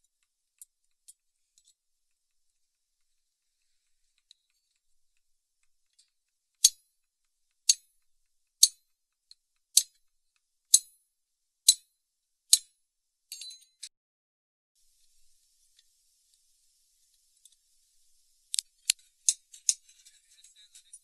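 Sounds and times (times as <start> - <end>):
metal-on-metal clinks: 13.3 - 13.9.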